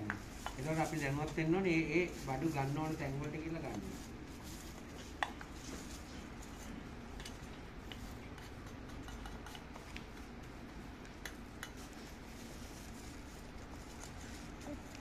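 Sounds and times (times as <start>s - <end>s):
spoon and spatula scraping: 3.0s - 10.5s.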